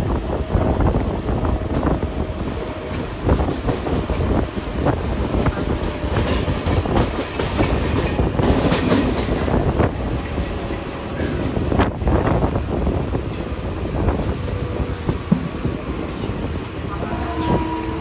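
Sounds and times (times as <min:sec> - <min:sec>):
train rumble: 0:00.0 - 0:18.0
wheels clicking over rail joints: 0:05.4 - 0:12.1.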